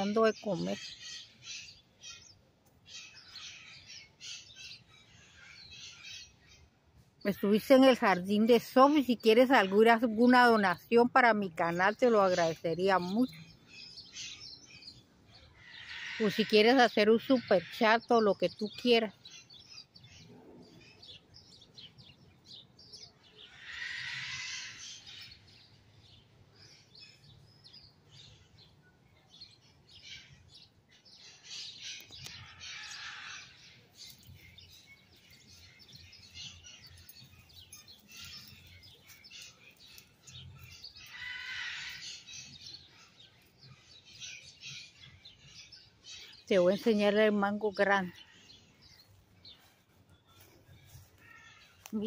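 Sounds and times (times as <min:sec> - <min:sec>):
small birds chirping: 0:00.0 - 0:52.0
loud rough bird calls: 0:13.3 - 0:18.1, 0:22.5 - 0:25.7, 0:29.9 - 0:46.5, 0:50.4 - 0:52.0.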